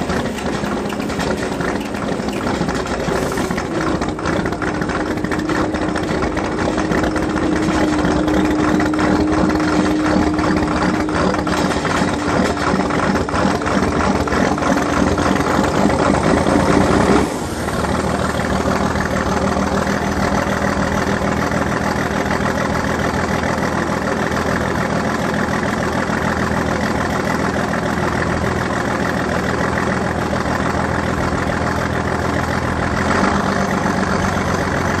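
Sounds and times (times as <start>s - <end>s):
steady whine: 0.0s - 22.3s
diesel engine cranking and firing: 0.0s - 35.0s
diesel engine idling: 0.0s - 35.0s.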